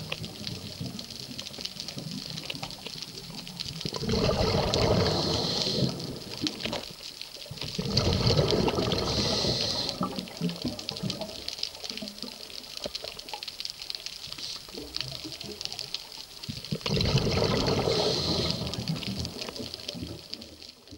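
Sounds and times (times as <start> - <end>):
bubbling exhaust underwater: 0.0 - 13.3, 14.2 - 20.9
faint crackling ticks: 0.0 - 20.9
diver breathing through regulator: 4.2 - 6.4, 8.4 - 10.2, 17.4 - 19.0.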